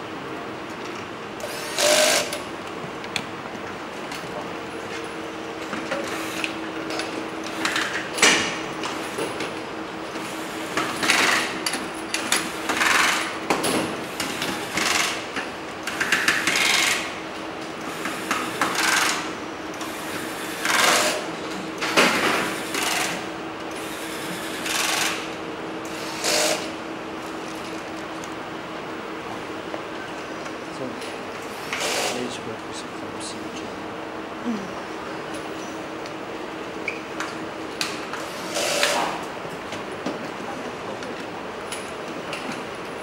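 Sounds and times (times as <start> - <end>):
steady hum: 17.0 - 40.0.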